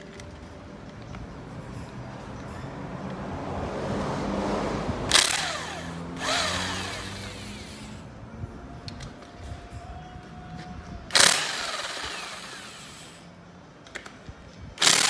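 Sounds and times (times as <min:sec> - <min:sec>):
pneumatic wrench bursts: 0:05.1 - 0:08.0, 0:11.1 - 0:13.2, 0:14.8 - 0:15.0.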